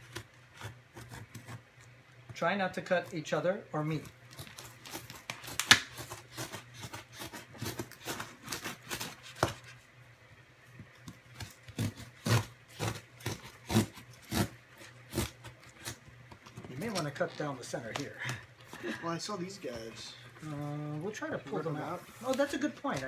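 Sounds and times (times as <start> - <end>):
box cutter slicing cardboard and tape: 4.4 - 9.7, 11.3 - 16.0.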